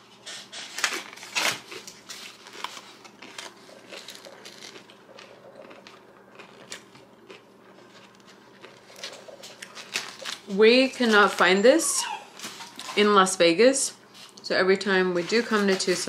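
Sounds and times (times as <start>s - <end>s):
person eating: 0.3s - 10.5s.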